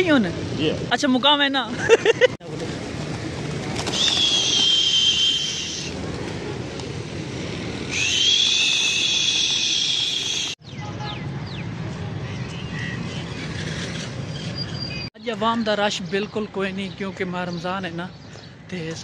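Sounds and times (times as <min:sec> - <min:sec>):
pigeon flock fluttering: 0:02.6 - 0:06.6
high-pitched whistles: 0:04.0 - 0:05.9, 0:07.9 - 0:10.6.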